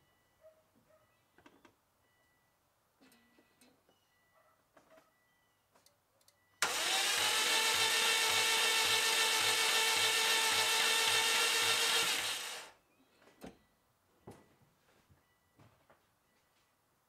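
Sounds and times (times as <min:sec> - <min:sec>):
starter motor cranking engine: 0:06.6 - 0:12.7.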